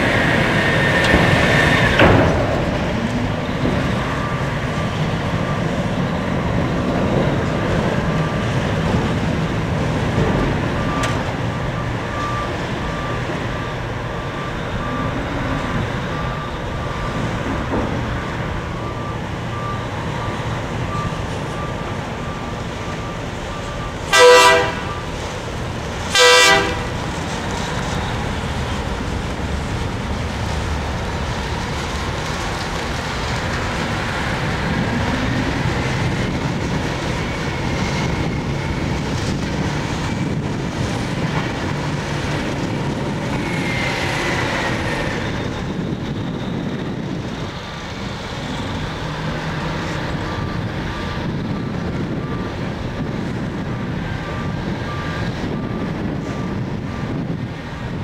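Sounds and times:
heavy machinery drone: 0.0 - 58.0
loud horn blasts: 24.1 - 25.1, 26.1 - 27.1.

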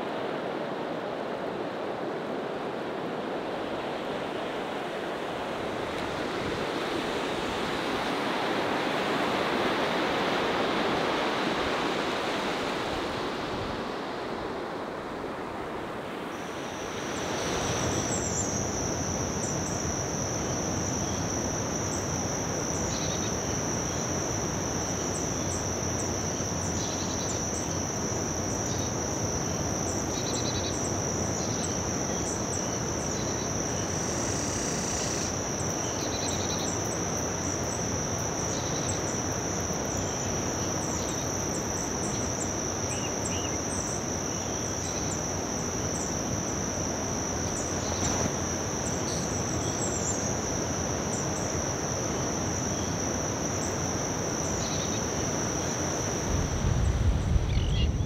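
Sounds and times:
insect chirps: 3.6 - 58.0
insects trilling: 15.9 - 58.0.

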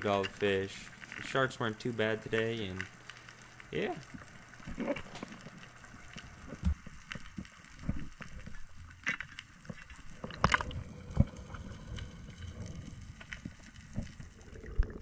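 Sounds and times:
underwater wash of water: 9.9 - 15.0.

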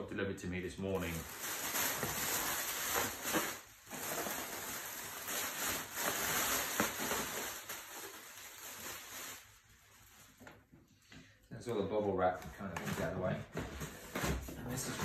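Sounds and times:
plastic packaging crinkling: 0.8 - 10.7.

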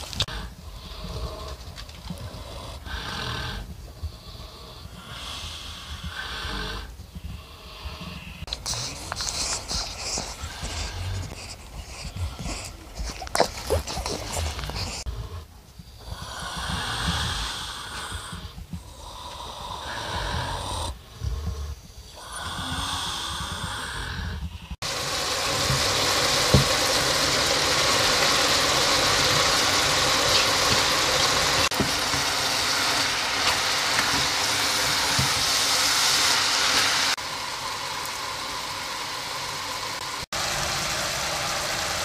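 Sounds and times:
pig breathing heavily: 0.0 - 37.3
vegetables sizzling in a pan: 24.8 - 42.0.

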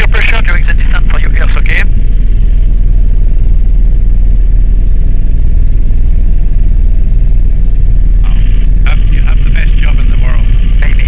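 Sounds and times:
helicopter rotor and engine rumble: 0.0 - 11.0.

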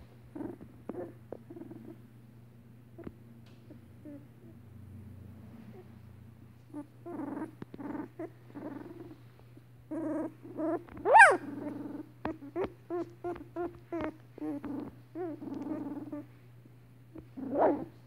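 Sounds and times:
puppies grunting and squeaking: 6.7 - 9.3, 9.9 - 16.4
puppy high squeal: 11.0 - 11.5.

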